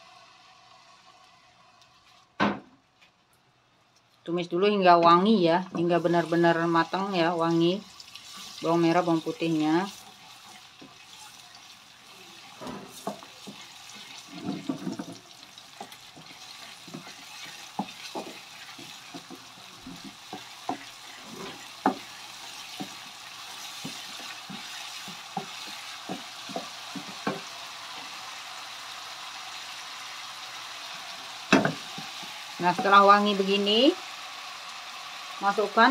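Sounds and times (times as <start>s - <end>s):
paste sizzling in hot oil: 5.7s - 35.9s
wooden spatula scraping a pan: 12.4s - 28.2s.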